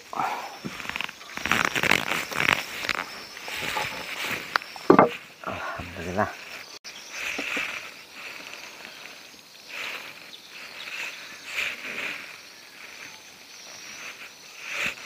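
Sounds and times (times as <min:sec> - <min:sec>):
insects calling in pulses: 0:00.0 - 0:15.0.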